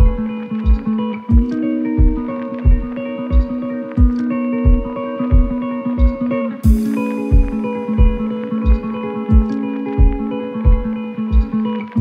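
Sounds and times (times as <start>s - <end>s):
instrumental relaxation music: 0.0s - 12.0s.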